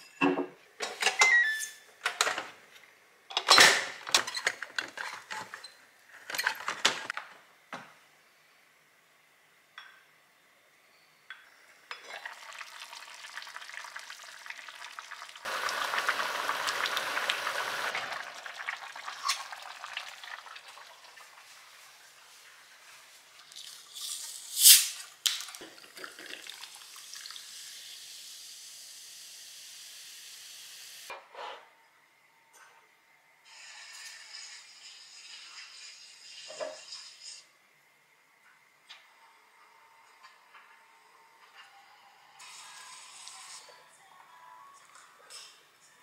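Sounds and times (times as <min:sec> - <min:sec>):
steady steam hiss: 0:15.5 - 0:17.9.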